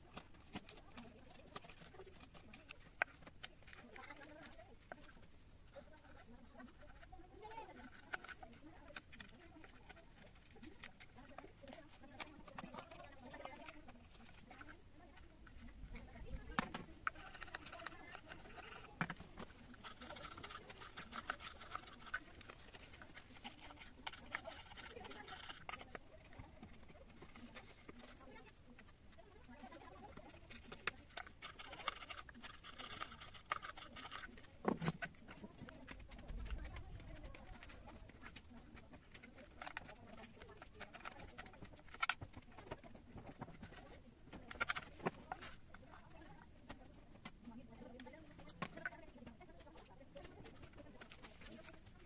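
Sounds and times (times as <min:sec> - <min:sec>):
knife cutting and scraping wood: 0:00.0 - 0:52.0.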